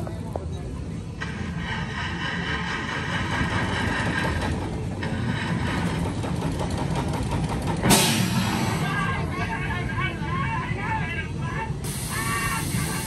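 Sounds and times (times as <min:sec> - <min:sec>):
engine idling: 0:01.2 - 0:13.0
hiss: 0:11.8 - 0:13.0.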